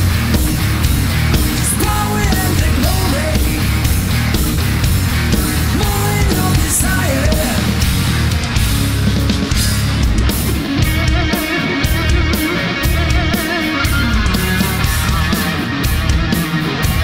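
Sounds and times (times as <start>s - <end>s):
bass guitar: 0.0s - 17.0s
distorted electric guitar lead: 0.0s - 17.0s
drums: 0.0s - 17.0s.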